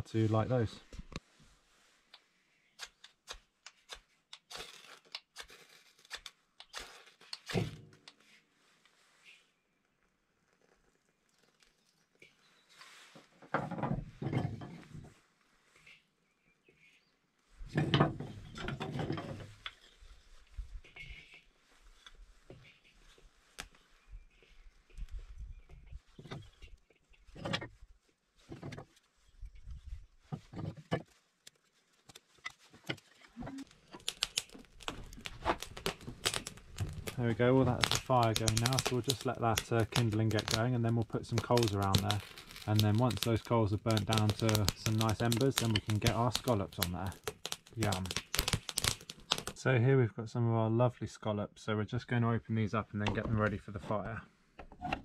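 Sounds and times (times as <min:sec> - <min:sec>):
knife scraping fire steel: 0:02.8 - 0:08.3, 0:18.2 - 0:24.5, 0:32.4 - 0:49.6
wooden sticks knocking: 0:33.4 - 0:40.7, 0:41.3 - 0:49.5.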